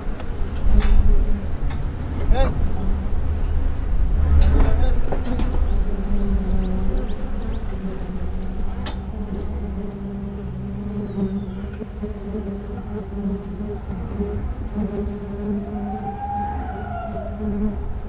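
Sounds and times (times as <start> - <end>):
honeybees buzzing: 0.0 - 18.0
high rising chirps: 5.6 - 11.8
long high whistle: 6.2 - 11.8, 15.6 - 17.4.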